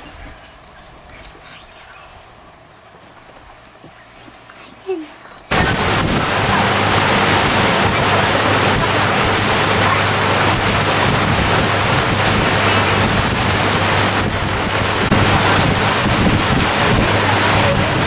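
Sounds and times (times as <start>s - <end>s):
low steady hum: 0.0s - 18.0s
wind buffeting microphone: 5.5s - 18.0s.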